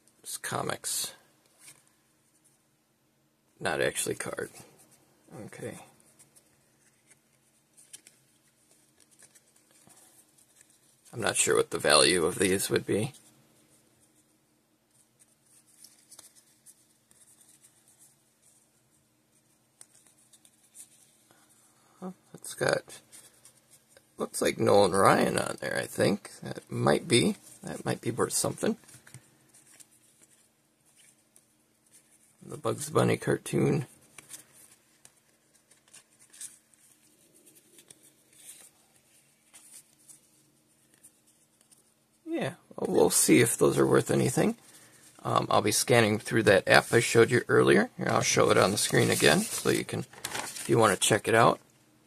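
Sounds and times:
trading cards rustling by hand: 0:03.7 - 0:42.2, 0:42.8 - 0:51.7
trading cards rubbing together: 0:48.0 - 0:51.3.

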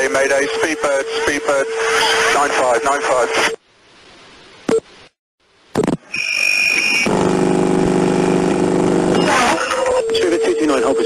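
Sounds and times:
radio transmission clicks: 0:05.8 - 0:06.1
harsh electronic buzz: 0:05.8 - 0:09.9
high electronic tone: 0:06.0 - 0:10.4.

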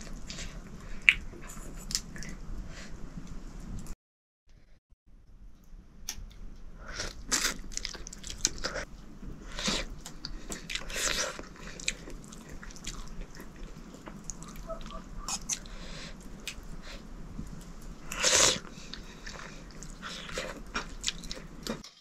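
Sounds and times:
person chewing noodles: 0:06.8 - 0:22.0.

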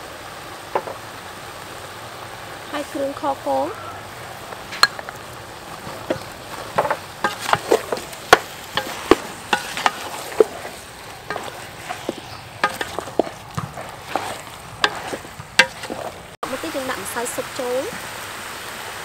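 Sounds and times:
steady hiss: 0:00.0 - 0:19.0
spatula scraping metal pot: 0:05.7 - 0:16.4.

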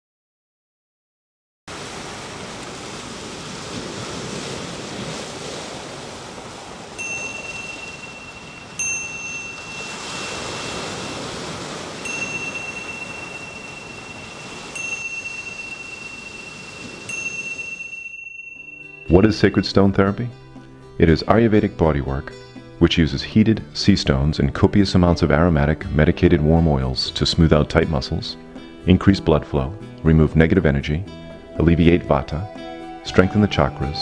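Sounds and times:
ocean surf on rocky shore: 0:01.7 - 0:19.6
high bell-like chime: 0:07.0 - 0:20.0.

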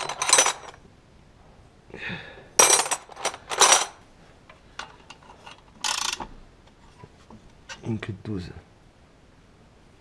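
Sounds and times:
metal spanners clattering in toolbox: 0:00.0 - 0:00.8, 0:02.6 - 0:04.0, 0:04.8 - 0:06.2.

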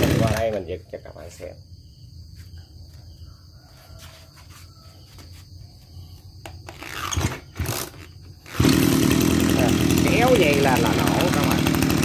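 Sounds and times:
brush cutter engine idling: 0:00.0 - 0:00.9, 0:07.0 - 0:12.0.

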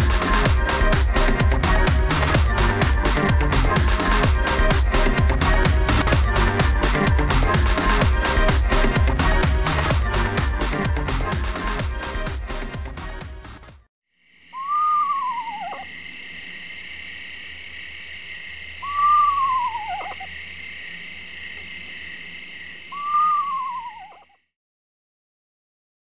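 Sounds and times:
owl calling: 0:14.4 - 0:15.9, 0:18.7 - 0:20.4, 0:22.9 - 0:24.4.

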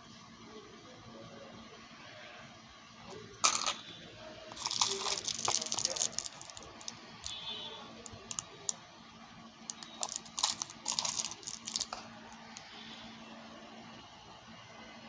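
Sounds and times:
metal charms in plastic packets: 0:03.4 - 0:03.9, 0:04.5 - 0:08.8, 0:09.7 - 0:12.7.

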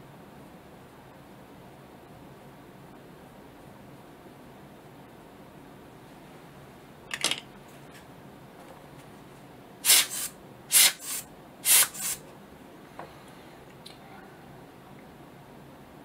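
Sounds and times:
hand air blower puffing: 0:09.8 - 0:12.2.

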